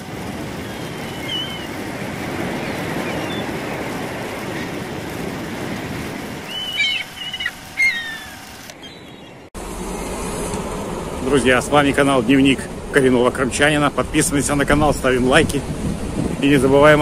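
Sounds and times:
surf washing up pebble beach: 0:00.0 - 0:08.4
birds chirping: 0:00.4 - 0:04.8, 0:06.4 - 0:10.1.

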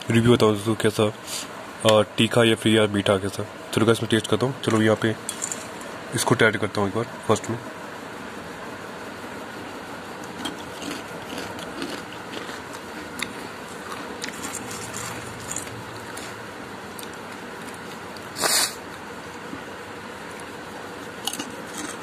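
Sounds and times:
steady background hiss: 0:00.0 - 0:22.0
chips rustling in steel bowl: 0:14.2 - 0:16.3.

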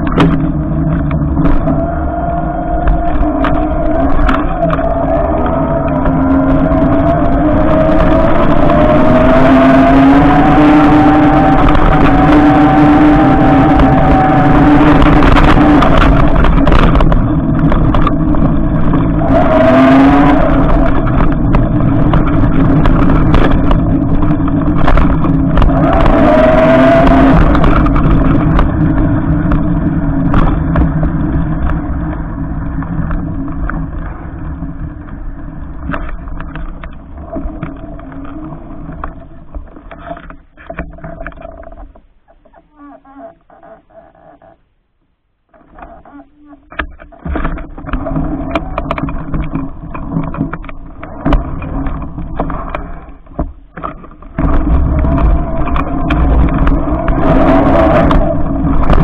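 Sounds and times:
tyre and wind rumble: 0:00.0 - 0:43.6, 0:45.4 - 0:59.0
electric motor whine: 0:00.8 - 0:31.7.

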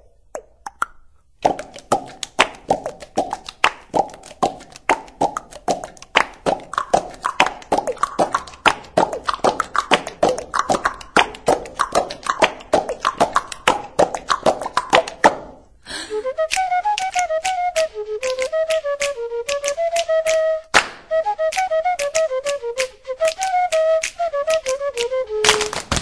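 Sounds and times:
rhythmic clicks and pops: 0:00.0 - 0:26.0
flute-like melody: 0:15.9 - 0:26.0.

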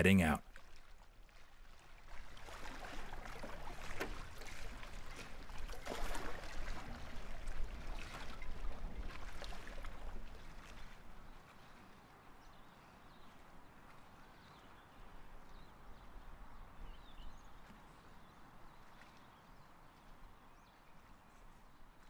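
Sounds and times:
water splashes: 0:00.0 - 0:12.0
water sloshing and trickling: 0:00.5 - 0:22.0.

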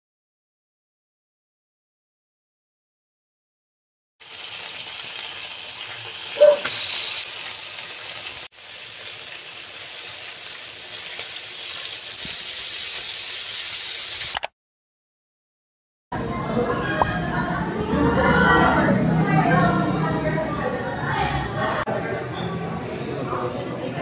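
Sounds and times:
chicken sizzling in hot oil: 0:04.2 - 0:14.4.

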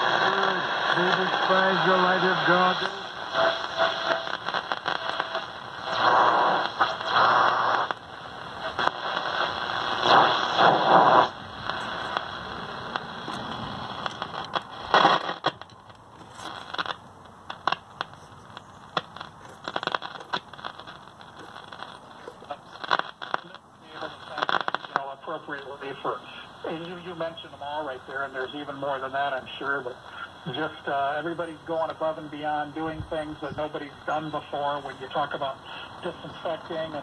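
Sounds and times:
radio static hiss and crackle: 0:00.0 - 0:37.0
crackling clicks: 0:02.7 - 0:23.6.

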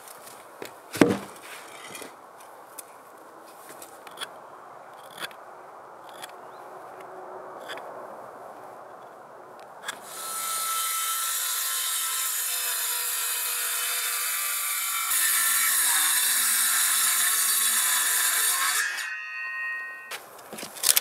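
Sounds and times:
circular saw cutting wood: 0:09.8 - 0:20.1.

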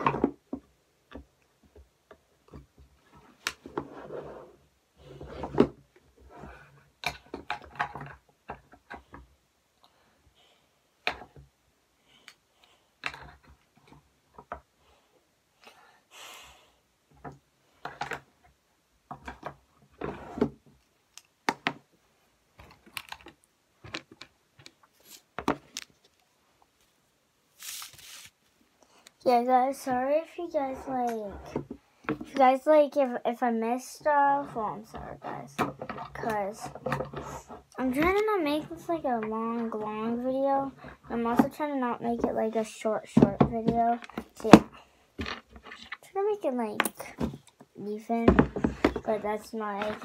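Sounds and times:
objects clicking and knocking: 0:22.6 - 0:26.2
short rustles: 0:26.8 - 0:28.6.

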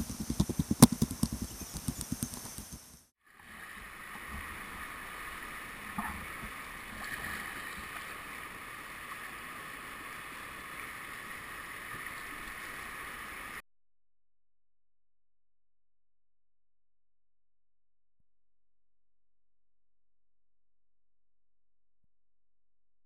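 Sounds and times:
kayak knock: 0:00.0 - 0:02.8.

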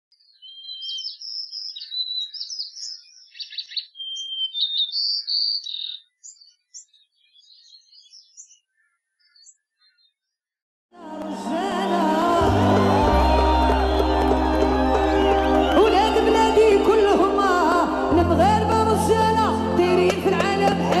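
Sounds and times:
songbird chirps and trills: 0:00.1 - 0:10.4.

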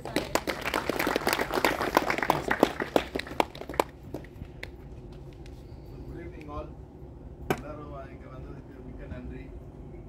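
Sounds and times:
audience clapping: 0:00.0 - 0:04.7.

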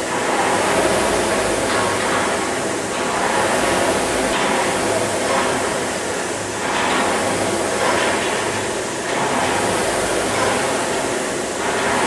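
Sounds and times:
rowing machine flywheel whirring: 0:00.0 - 0:12.0.

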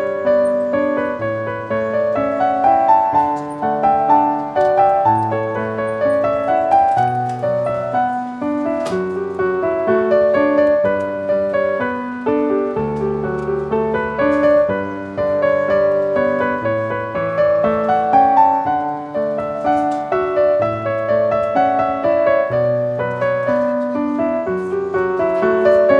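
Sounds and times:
piano music: 0:00.0 - 0:25.9.

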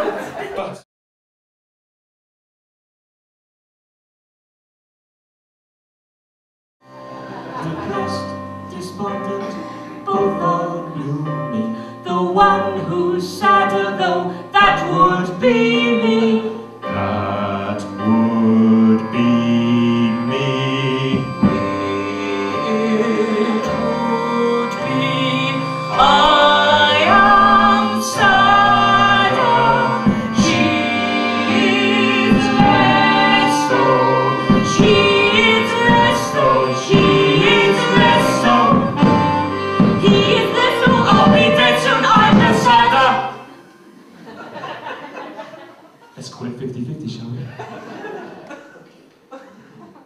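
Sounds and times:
two people singing live: 0:07.6 - 0:43.6
keyboard and drums band: 0:17.0 - 0:43.6
drum strikes: 0:21.2 - 0:22.0, 0:27.0 - 0:33.8, 0:34.4 - 0:43.1.

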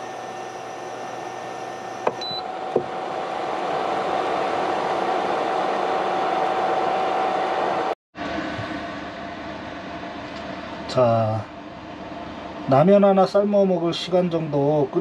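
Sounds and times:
cooling fan whirring: 0:00.0 - 0:15.0.

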